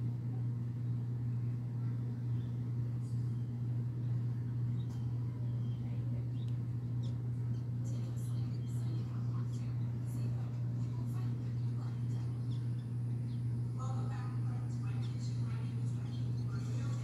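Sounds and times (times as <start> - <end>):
low mechanical hum: 0.0 - 17.0
faint high bird chirps: 1.8 - 9.9, 12.1 - 13.6.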